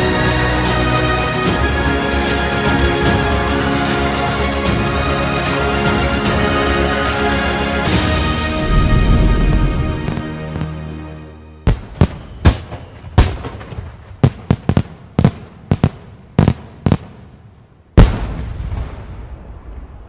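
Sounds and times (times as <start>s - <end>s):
fireworks bangs echoing: 11.6s - 17.4s, 18.0s - 19.9s.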